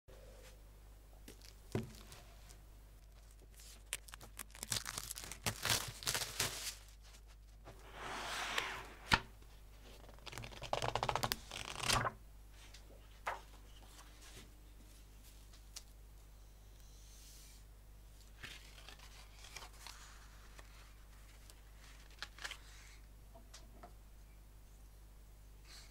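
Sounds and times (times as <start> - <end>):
paper sheets rustling and sliding: 6.0 - 9.2.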